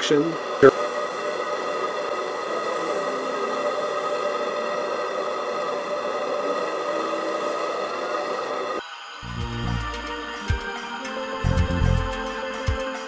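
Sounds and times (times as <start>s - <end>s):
propane torch rushing: 0.0s - 9.2s.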